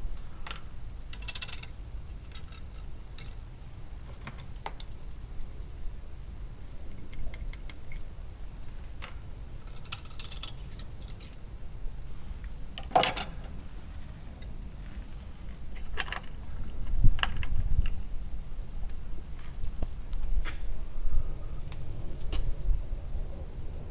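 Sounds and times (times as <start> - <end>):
gear clicking and clattering: 0.4 - 3.4.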